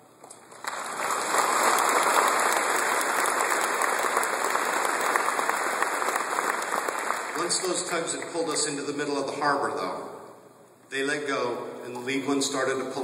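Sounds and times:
large audience applauding: 0.3s - 8.5s.

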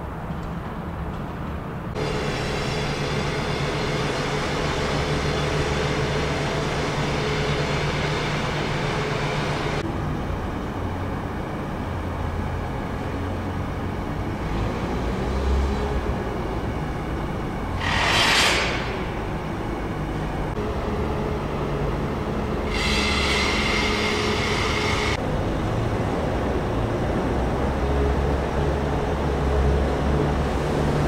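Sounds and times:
heavy machinery drone: 1.9s - 31.0s
whining motor: 20.6s - 25.2s.

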